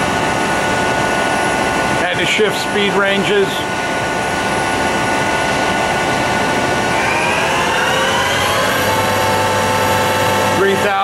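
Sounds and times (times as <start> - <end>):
boring mill spindle whine: 2.6 - 11.0.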